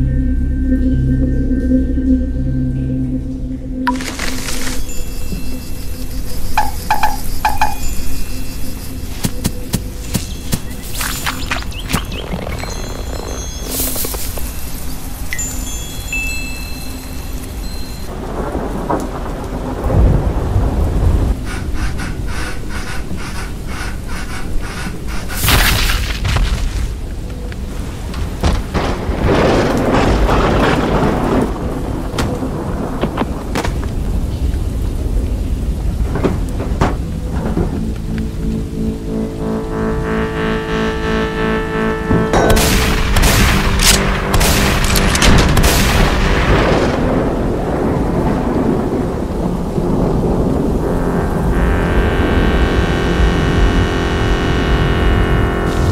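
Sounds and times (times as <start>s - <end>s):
low rumble: 0.0s - 6.6s, 34.0s - 55.9s
music: 0.0s - 18.1s, 36.4s - 55.9s
thunder rumbling: 3.4s - 15.3s, 17.6s - 55.9s
steady rain: 3.8s - 55.9s
shotgun blasts: 42.5s - 46.4s
sharp clicks: 42.6s - 45.8s.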